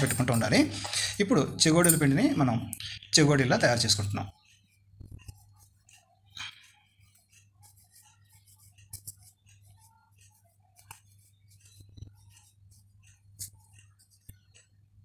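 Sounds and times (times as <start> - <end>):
dough rolling on wooden board: 3.6 - 15.0.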